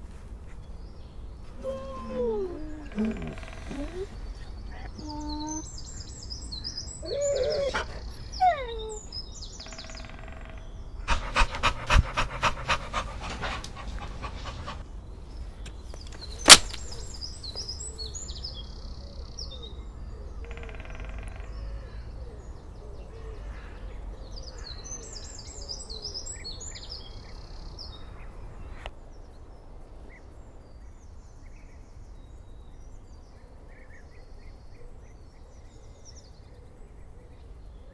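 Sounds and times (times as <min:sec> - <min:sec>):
birds chirping: 0:00.0 - 0:28.3
loud sharp click: 0:16.4 - 0:17.0.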